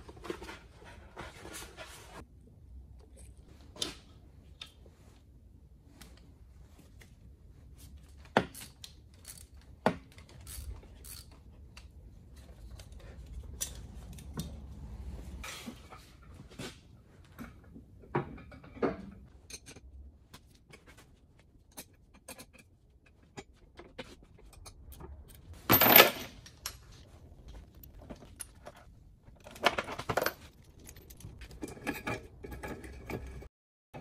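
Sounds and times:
metal chain clinking and clanking: 24.4 - 26.7.

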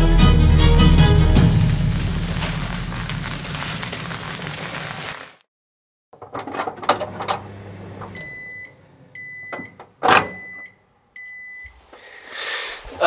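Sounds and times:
microwave running hum: 6.2 - 11.5
microwave high beep: 8.1 - 11.8.

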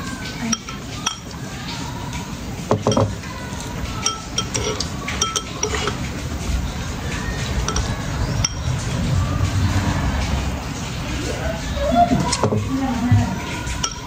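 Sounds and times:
metal spoon clinking on bowl: 0.4 - 1.4, 2.8 - 3.3, 4.0 - 6.1, 7.6 - 8.8, 13.8 - 14.0.

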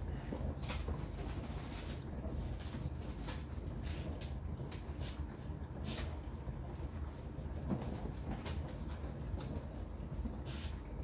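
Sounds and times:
dishwasher pump humming: 0.0 - 11.0
water swishing in dishwasher: 0.0 - 11.0.

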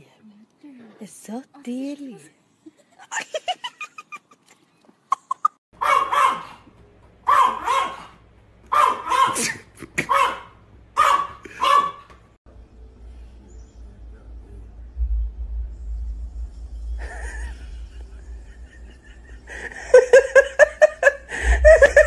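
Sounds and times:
dog barking: 5.8 - 6.7, 7.3 - 12.1.

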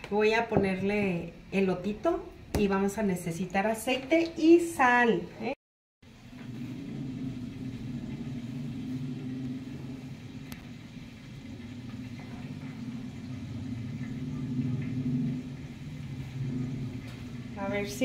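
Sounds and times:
low mechanical hum: 5.4 - 18.0.

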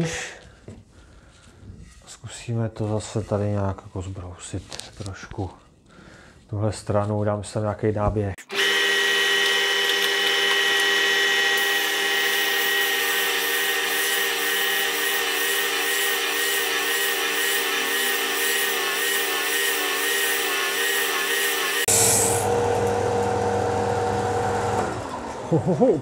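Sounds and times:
sander motor whine: 8.4 - 25.6.

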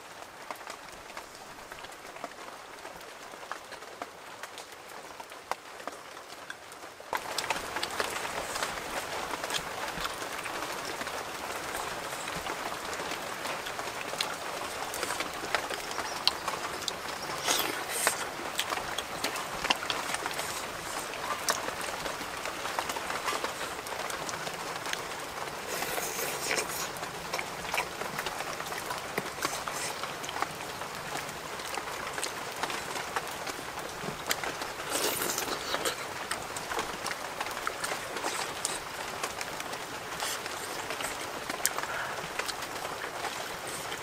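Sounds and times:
steady background hiss: 0.0 - 44.0
chewing: 7.2 - 44.0.

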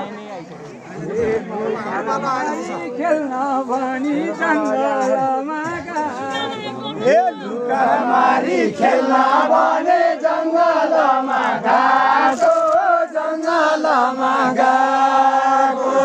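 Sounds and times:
group of voices chanting a song: 6.0 - 16.0.

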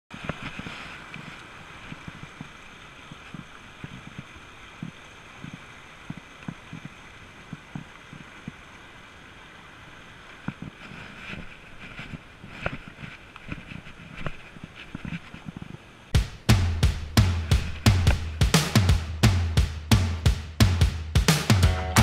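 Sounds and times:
stream rushing over rocks: 0.1 - 16.2
low thumps near microphone: 16.2 - 22.0.

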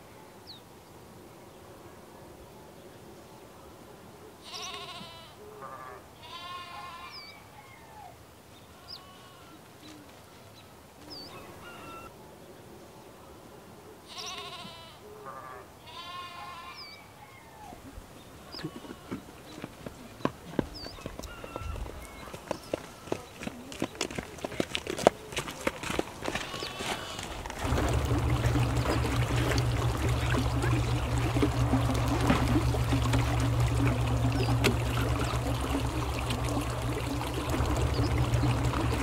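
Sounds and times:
sheep and goats bleating: 4.4 - 7.4, 8.7 - 9.7, 14.1 - 17.0, 18.4 - 19.5, 21.2 - 23.4, 26.2 - 27.5
footsteps on dirt path: 18.6 - 27.7.

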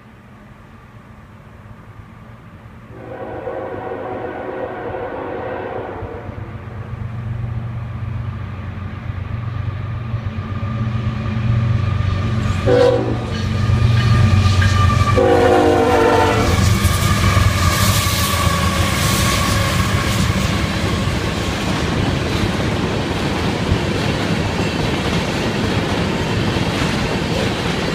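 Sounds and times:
locomotive air horn blasts: 2.9 - 6.5, 12.6 - 13.4, 14.8 - 17.3.

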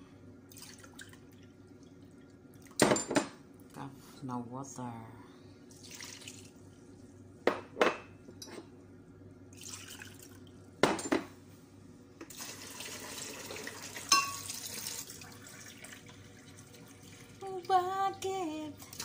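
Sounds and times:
water pouring into bowl: 5.7 - 6.5, 9.5 - 10.5, 12.3 - 17.7.

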